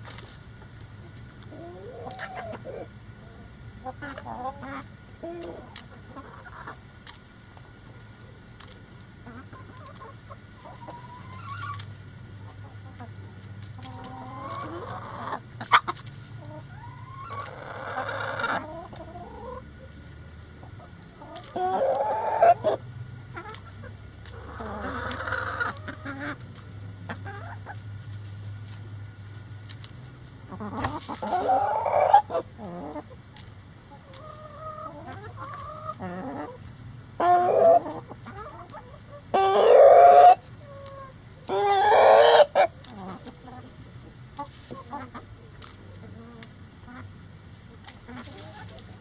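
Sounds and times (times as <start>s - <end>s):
chickens clucking: 0.0s - 49.0s.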